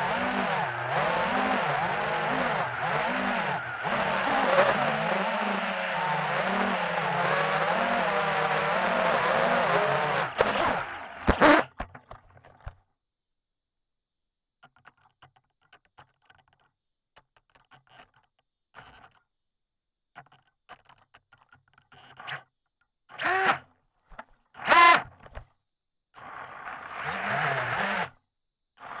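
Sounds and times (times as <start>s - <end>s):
drone motors whining: 0.0s - 11.6s.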